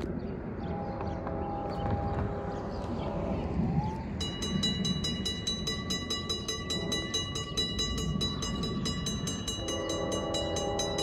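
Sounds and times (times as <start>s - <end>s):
railroad crossing bell ringing: 4.1s - 11.0s.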